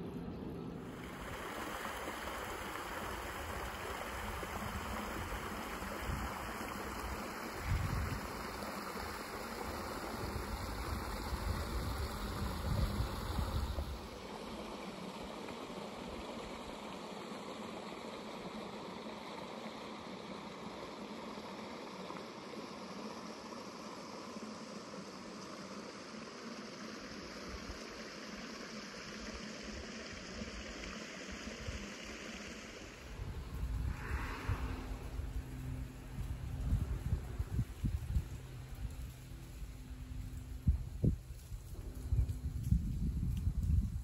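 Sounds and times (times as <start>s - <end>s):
stream flowing over stones: 0.8s - 34.2s
wind buffeting microphone: 3.2s - 8.6s, 9.8s - 14.2s, 33.0s - 44.0s.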